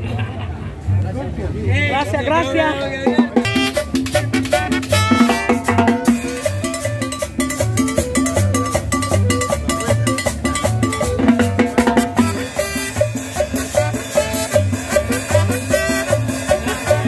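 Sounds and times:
band playing latin dance music: 0:01.8 - 0:17.0.

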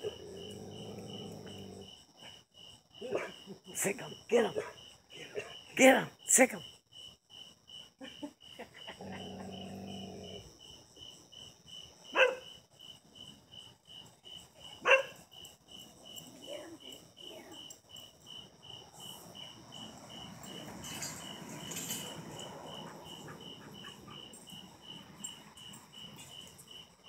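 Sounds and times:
dog growling: 0:00.0 - 0:02.0, 0:08.9 - 0:10.6
crickets chirping: 0:00.0 - 0:27.0
dog barking: 0:03.0 - 0:03.5, 0:04.5 - 0:05.6, 0:12.1 - 0:12.5, 0:14.8 - 0:15.2.

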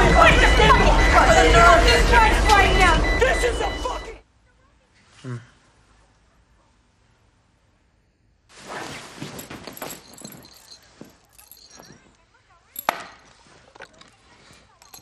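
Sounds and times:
people rustling: 0:08.5 - 0:15.0.

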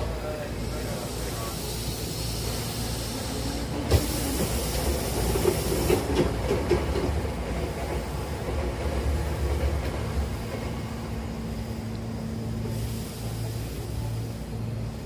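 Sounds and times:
train car low rumble: 0:00.0 - 0:15.0
sliding door hiss: 0:01.2 - 0:06.4
train doors clacking: 0:02.4 - 0:11.0.

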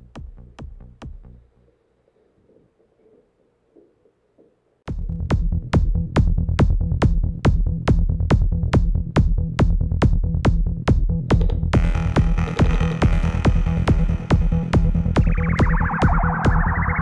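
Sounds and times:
kick drum beat: 0:00.0 - 0:01.3, 0:04.9 - 0:17.0
electronic dance music: 0:11.8 - 0:17.0
sustained synth: 0:13.3 - 0:17.0.

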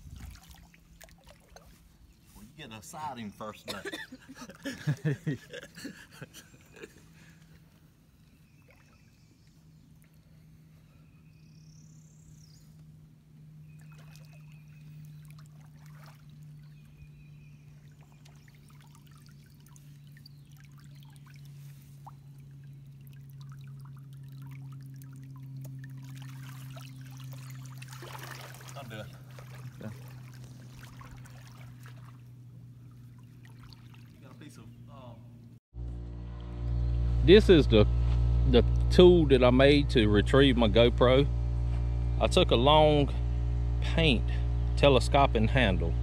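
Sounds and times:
water sloshing and trickling: 0:00.0 - 0:11.0, 0:12.6 - 0:35.6
steady low hum: 0:00.0 - 0:46.0.

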